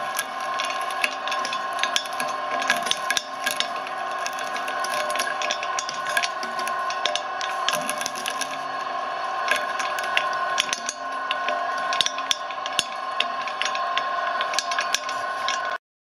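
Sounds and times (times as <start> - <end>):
candy crunching and cracking: 0.0 - 15.7
shredder motor whining: 0.0 - 15.8.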